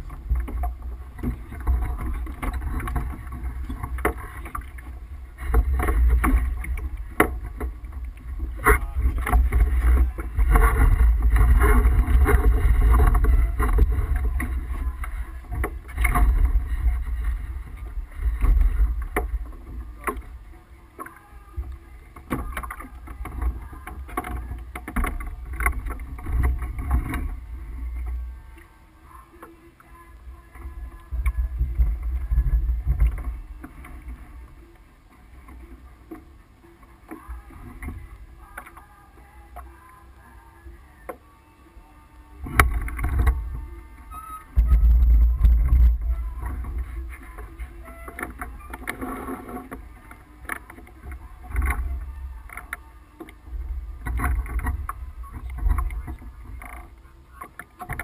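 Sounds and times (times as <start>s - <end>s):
water rushing along hull: 0.0s - 58.0s
wind buffeting microphone: 44.5s - 47.7s.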